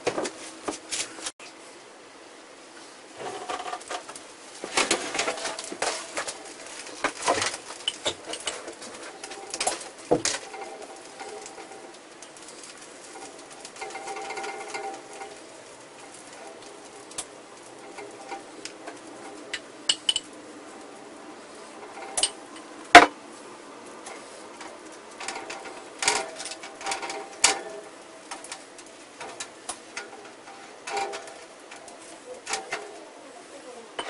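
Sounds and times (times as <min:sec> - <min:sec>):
clinks on metal wire rack: 0:04.7 - 0:20.3, 0:21.8 - 0:23.2, 0:24.0 - 0:33.1.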